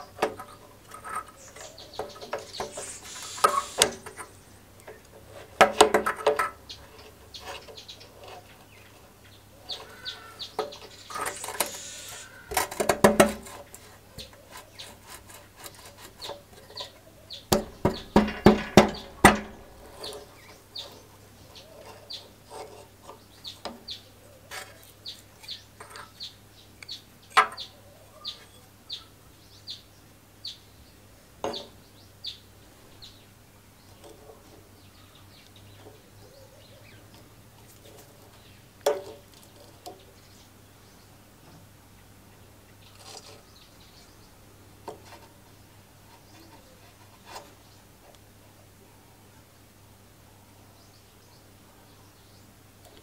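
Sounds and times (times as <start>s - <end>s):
bird chirping: 1.2s - 4.6s, 6.6s - 12.5s, 23.0s - 37.2s.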